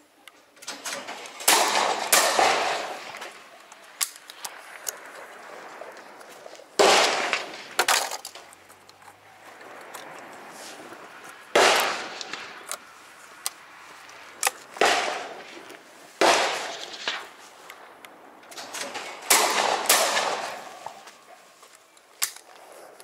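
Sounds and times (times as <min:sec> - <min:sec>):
loud sharp bangs: 0:00.7 - 0:04.2, 0:06.8 - 0:08.5, 0:11.5 - 0:12.7, 0:14.7 - 0:17.5, 0:18.6 - 0:21.1.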